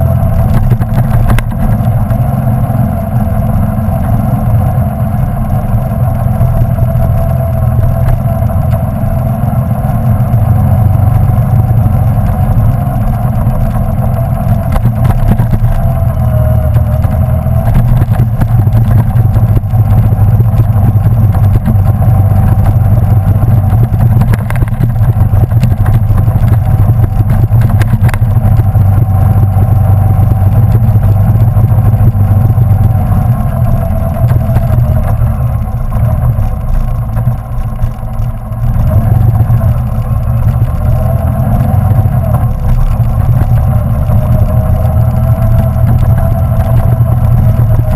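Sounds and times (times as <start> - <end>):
motorcycle engine running: 0.0 - 47.9
wind and road rumble: 0.0 - 47.9.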